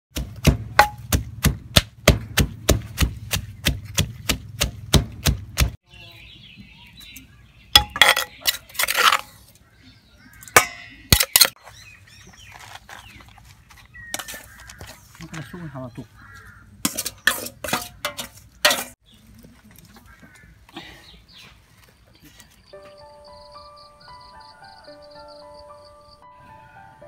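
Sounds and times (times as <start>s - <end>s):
pestle pounding in a mortar: 0.1s - 5.8s
sharp knocks: 0.1s - 5.8s.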